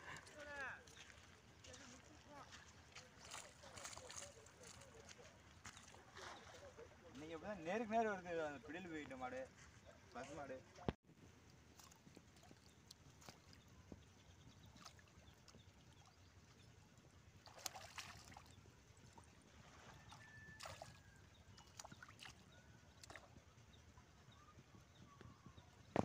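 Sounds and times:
shallow water splashing: 0:00.0 - 0:07.5, 0:11.5 - 0:23.4.

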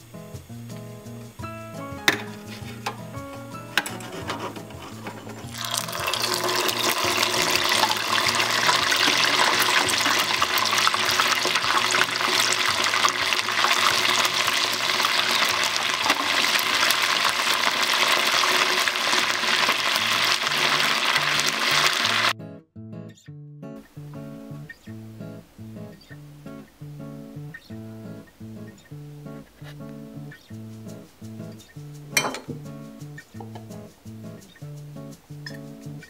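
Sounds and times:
chicken deep-frying in oil: 0:04.1 - 0:22.3.

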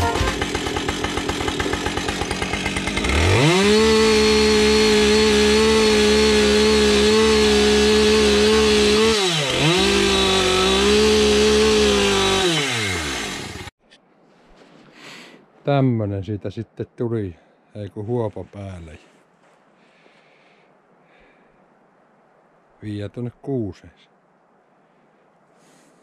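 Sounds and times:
chainsaw idling and revving: 0:00.0 - 0:13.7.

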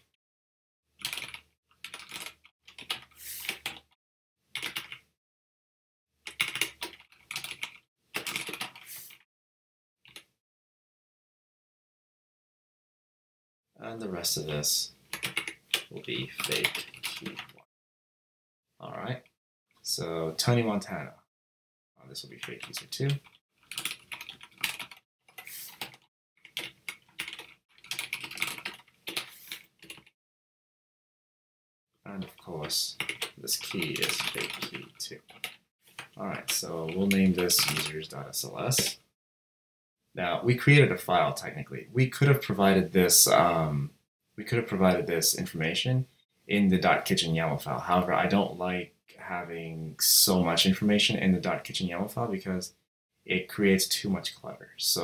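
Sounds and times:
typing on computer keyboard: 0:01.0 - 0:03.9, 0:04.6 - 0:05.0, 0:06.2 - 0:08.8, 0:15.1 - 0:17.6, 0:22.4 - 0:30.1, 0:33.0 - 0:36.2, 0:37.0 - 0:37.9.

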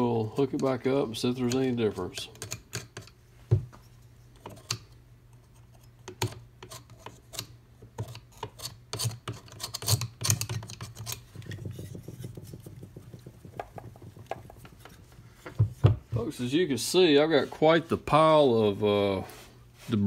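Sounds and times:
screwdriver scraping fan wheel: 0:04.3 - 0:12.4.

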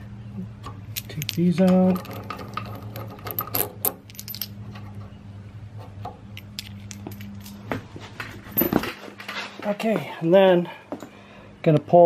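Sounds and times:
steady low hum: 0:00.0 - 0:12.0
metal bolts and washers clinking: 0:00.6 - 0:05.0, 0:06.3 - 0:07.7, 0:08.5 - 0:09.4.

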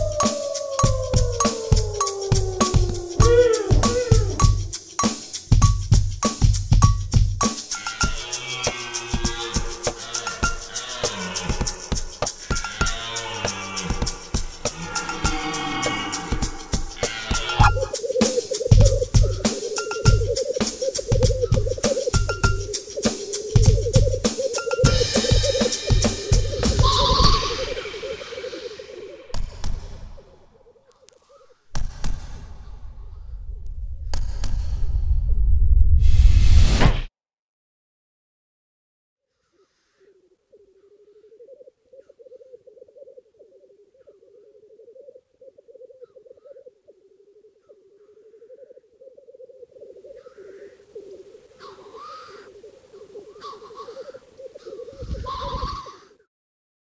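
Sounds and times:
wavering tone: 0:00.0 - 0:05.2, 0:17.6 - 0:18.0
harsh animal calls: 0:00.0 - 0:05.4, 0:07.6 - 0:29.4, 0:39.5 - 0:56.3
low fast-pulsing animal trill: 0:07.8 - 0:29.1
low rumble: 0:32.2 - 0:36.8.

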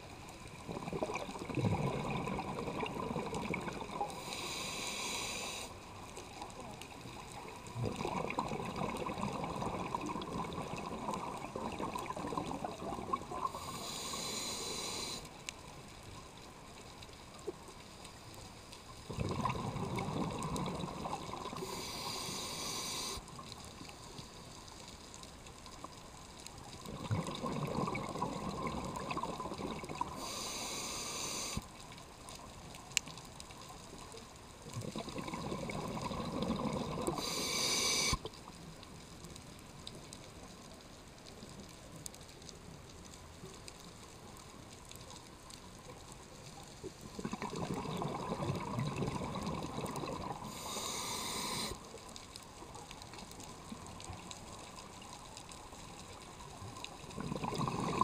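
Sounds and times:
exhaled bubbles gurgling underwater: 0:00.0 - 0:15.2, 0:19.0 - 0:23.9, 0:25.9 - 0:38.6, 0:45.8 - 0:58.0
regulator hiss: 0:04.1 - 0:05.9, 0:13.4 - 0:15.4, 0:21.6 - 0:23.4, 0:30.1 - 0:31.7, 0:37.1 - 0:38.3, 0:50.4 - 0:51.9.

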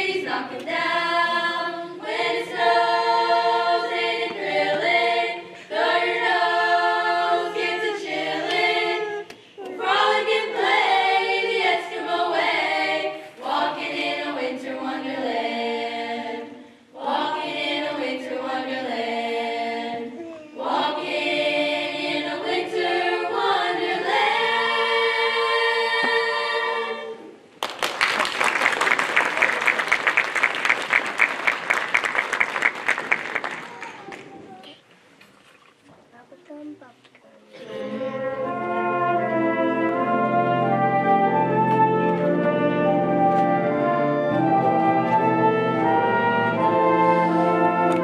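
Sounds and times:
choir singing: 0:00.0 - 0:27.4, 0:37.6 - 0:48.0
audience applause: 0:27.6 - 0:34.6.

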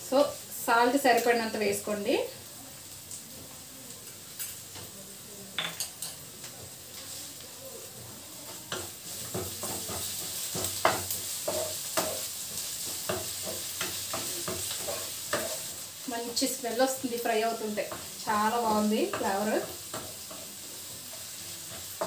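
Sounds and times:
onions sizzling in a frying pan: 0:00.0 - 0:22.0
spatula scraping a pan: 0:08.4 - 0:22.0.

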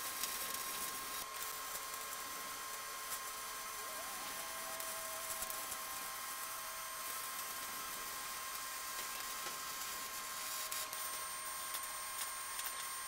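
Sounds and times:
welding arc hissing crackle: 0:00.0 - 0:13.0.

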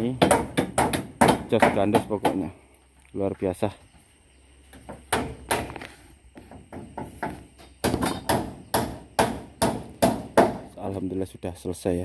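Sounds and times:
hammer striking nails into wood: 0:00.2 - 0:02.5, 0:04.9 - 0:05.8, 0:06.7 - 0:10.7.

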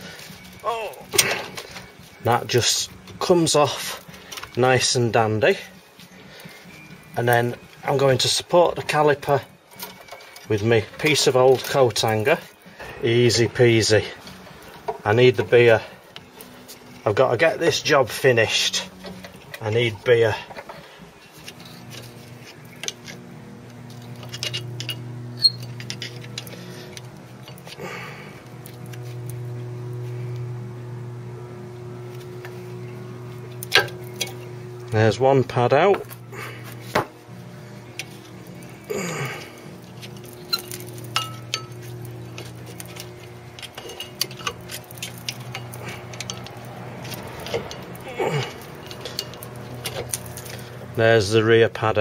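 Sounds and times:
metallic clicks and scraping: 0:06.4 - 0:13.4, 0:14.2 - 0:27.8, 0:32.1 - 0:35.0, 0:35.9 - 0:51.0
metal clinking and knocking: 0:39.8 - 0:50.6.

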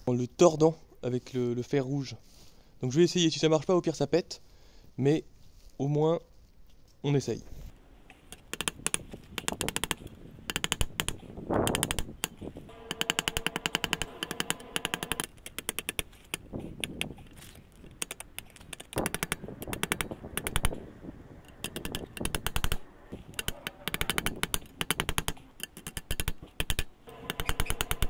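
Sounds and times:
hammer striking hot steel: 0:12.7 - 0:15.3.

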